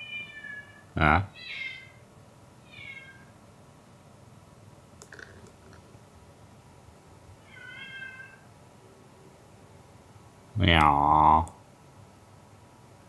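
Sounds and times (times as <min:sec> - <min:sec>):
cat meowing softly: 0:00.0 - 0:02.0, 0:02.6 - 0:03.3, 0:07.4 - 0:08.5.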